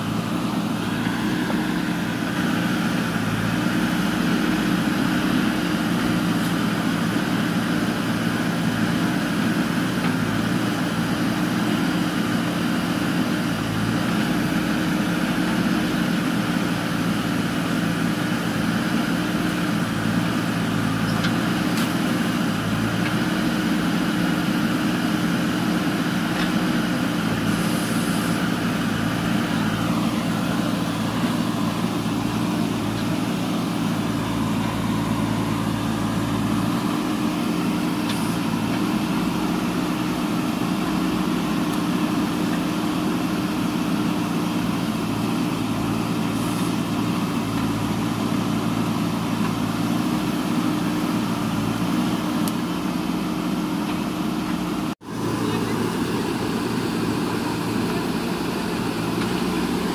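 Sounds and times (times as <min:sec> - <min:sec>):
diesel engine running: 0:00.0 - 0:59.9
backhoe arm digging soil and rubble: 0:53.5 - 0:59.9.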